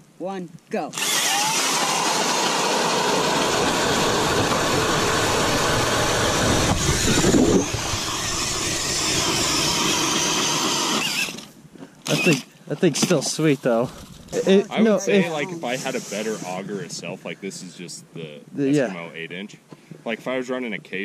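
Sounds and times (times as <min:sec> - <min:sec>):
ice augers grinding whir: 0:01.0 - 0:12.4.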